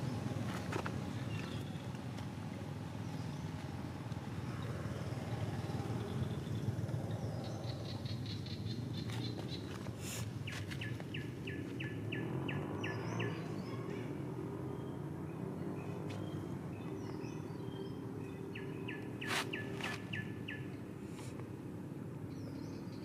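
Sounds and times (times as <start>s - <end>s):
bird chirping: 4.5s - 9.8s, 10.4s - 20.8s.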